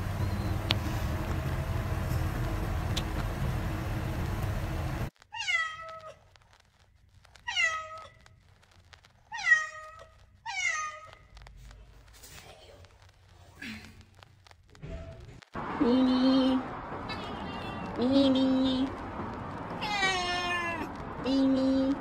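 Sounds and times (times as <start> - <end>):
low rumble: 0.0 - 5.2, 11.3 - 22.0
cat meowing: 5.3 - 6.2, 7.4 - 8.2, 9.3 - 11.3, 17.1 - 18.5, 19.8 - 20.9.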